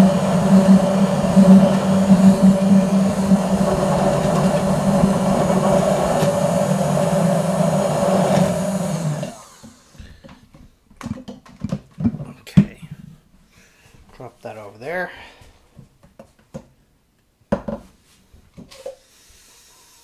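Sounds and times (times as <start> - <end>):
stick blender running: 0.0 - 10.3.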